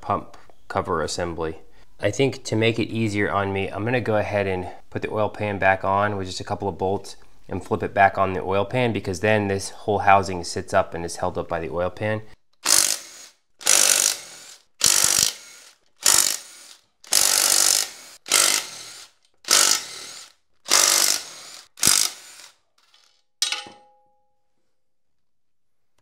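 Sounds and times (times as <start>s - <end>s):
impact driver hammering: 12.6s - 22.5s.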